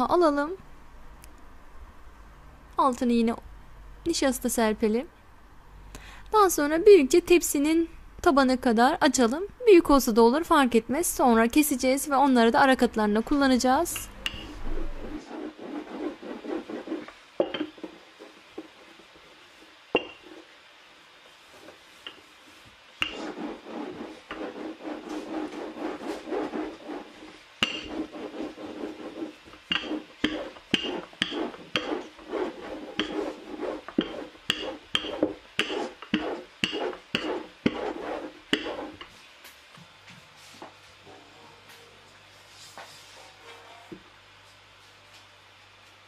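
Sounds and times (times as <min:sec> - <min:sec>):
rolling pin rolling on dough: 0:13.8 - 0:20.6, 0:21.2 - 0:39.2.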